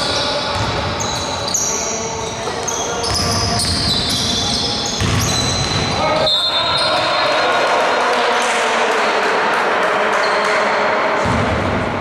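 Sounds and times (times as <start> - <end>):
sneakers squeaking: 0.0 - 7.3
basketball bouncing: 0.5 - 1.0, 5.0 - 6.0, 11.2 - 11.9
players shouting: 5.2 - 9.3.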